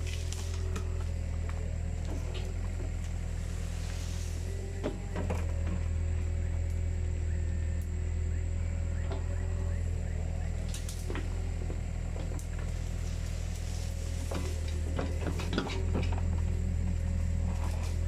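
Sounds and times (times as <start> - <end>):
diesel engine humming: 0.0 - 18.0
machine knocks and clanks: 14.2 - 16.5.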